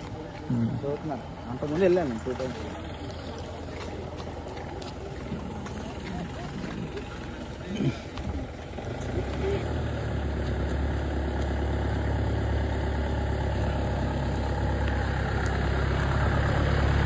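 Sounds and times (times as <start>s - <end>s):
vehicle engine humming: 0.0s - 17.0s.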